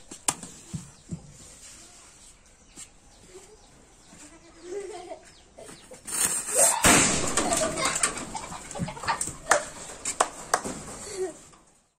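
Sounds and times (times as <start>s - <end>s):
firecracker hissing and crackling: 6.1s - 7.1s
firecracker bang: 6.8s - 8.4s.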